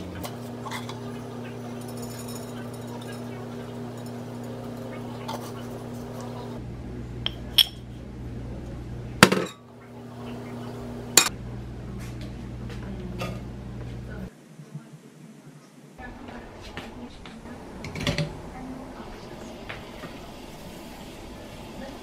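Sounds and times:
steady hum: 0.0s - 14.8s.

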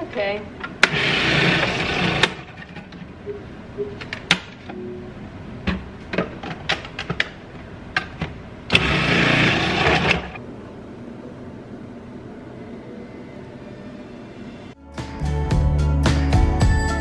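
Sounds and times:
food processor motor running: 0.9s - 2.5s, 8.7s - 10.4s.

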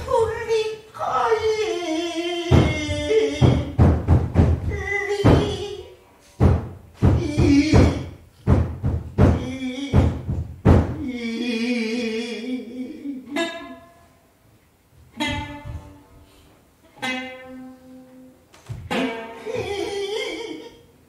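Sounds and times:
shamisen plucks: 1.3s - 11.0s, 13.2s - 14.2s, 15.1s - 20.8s.

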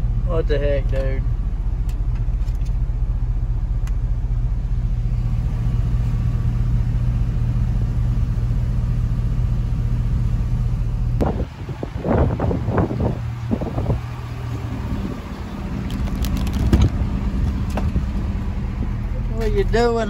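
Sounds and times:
truck engine idling: 0.0s - 20.0s
wind buffeting microphone: 11.2s - 19.0s.

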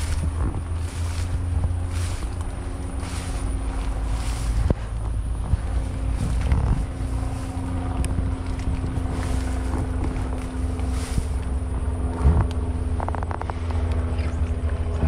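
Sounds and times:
faint steady hum: 0.0s - 15.0s
wind buffeting microphone: 0.0s - 15.0s.

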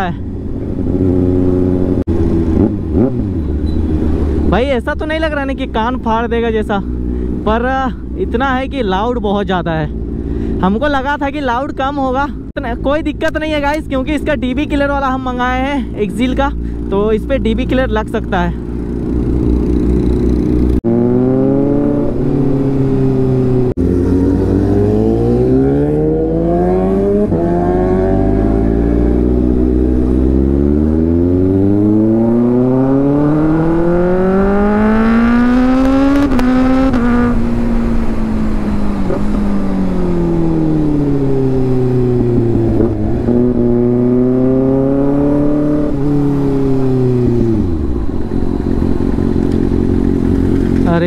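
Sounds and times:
motorcycle engine revving: 0.0s - 4.8s, 16.2s - 51.0s.

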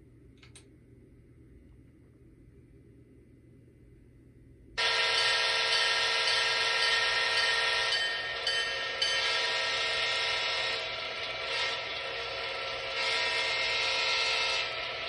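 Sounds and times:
model train horn blast: 4.8s - 15.0s.

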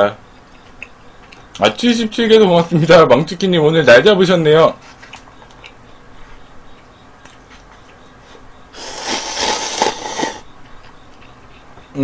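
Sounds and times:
person slurping broth: 8.8s - 10.4s.

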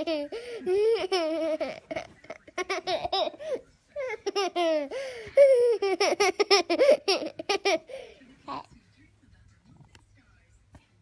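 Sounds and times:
toddler giggling: 0.0s - 8.7s.

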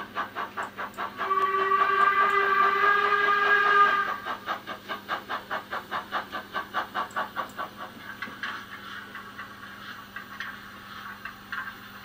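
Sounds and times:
steam exhaust chuffing: 0.0s - 12.0s
steam whistle: 1.2s - 4.2s.

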